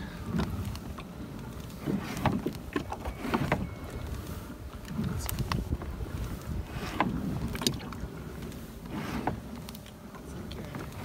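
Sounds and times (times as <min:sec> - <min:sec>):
water sounds: 0:00.0 - 0:11.0
wind rumble on microphone: 0:00.0 - 0:11.0
knocks and clicks from hull: 0:01.8 - 0:04.0, 0:06.8 - 0:08.0.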